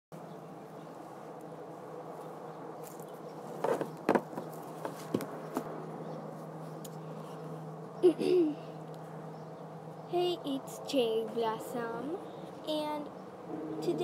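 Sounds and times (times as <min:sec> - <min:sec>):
buzzing hum: 0:00.2 - 0:14.0
sharp knocks and bumps: 0:03.5 - 0:05.7.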